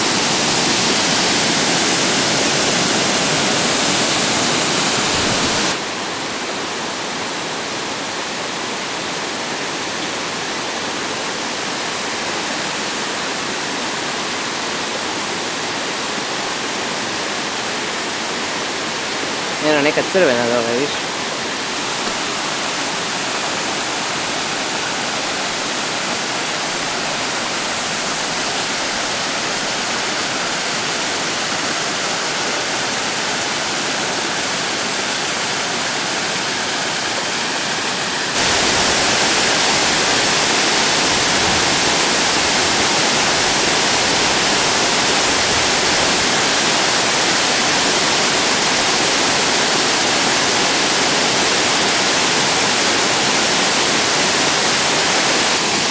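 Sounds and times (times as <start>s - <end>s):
waterfall pouring: 0.0s - 5.9s, 18.2s - 55.9s.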